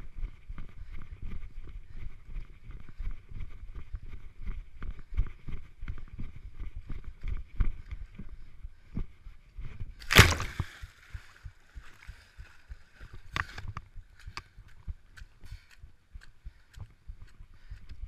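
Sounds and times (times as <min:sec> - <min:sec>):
running footsteps thudding: 0:10.0 - 0:10.7
loud splash: 0:10.0 - 0:10.8
splashing steps through water: 0:10.0 - 0:11.3.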